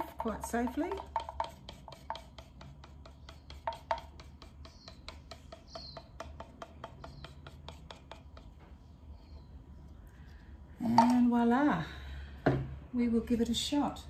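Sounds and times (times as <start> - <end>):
tool scraping wet paint: 0.0 - 8.5.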